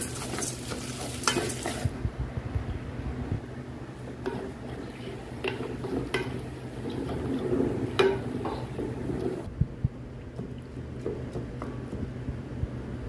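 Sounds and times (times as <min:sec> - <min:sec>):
spoon knocking against pot: 0:08.0 - 0:08.8.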